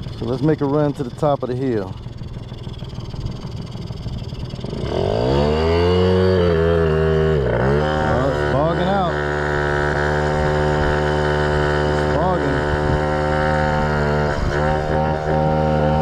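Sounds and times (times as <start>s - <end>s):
scooter engine running: 0.0s - 16.0s.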